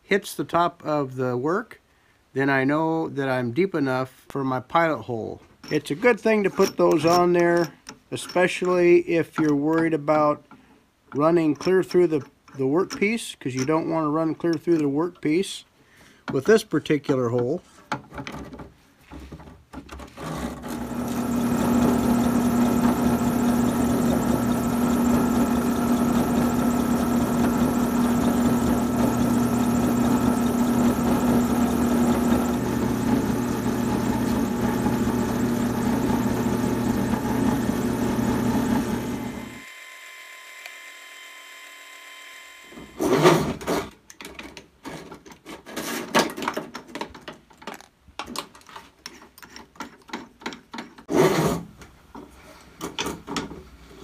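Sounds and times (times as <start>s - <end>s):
drill press motor humming: 20.6s - 43.1s.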